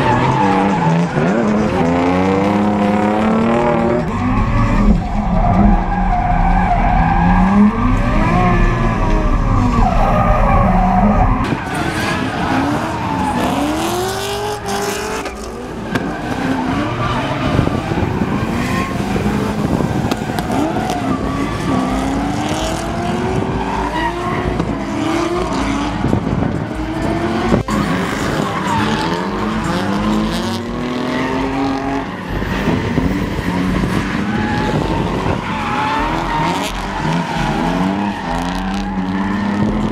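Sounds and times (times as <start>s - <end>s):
car engines revving hard: 0.0s - 39.9s
tyres squealing and skidding: 0.0s - 39.9s
deep low rumble: 3.3s - 11.6s.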